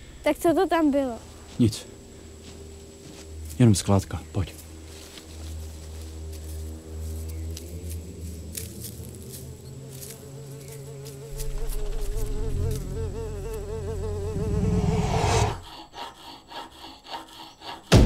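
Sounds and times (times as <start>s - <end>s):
fly buzzing: 0.4s - 3.7s, 4.3s - 18.0s
low rumbling drone: 4.6s - 9.8s, 11.3s - 16.0s.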